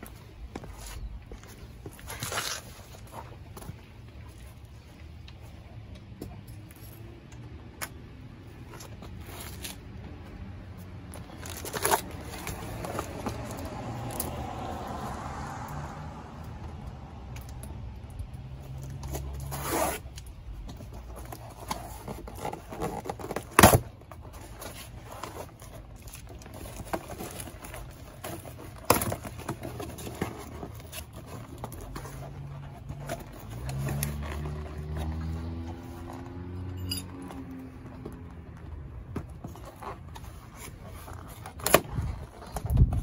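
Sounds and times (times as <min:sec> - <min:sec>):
cardboard and tape tearing: 0:11.2 - 0:14.2, 0:19.0 - 0:20.2, 0:21.2 - 0:36.6.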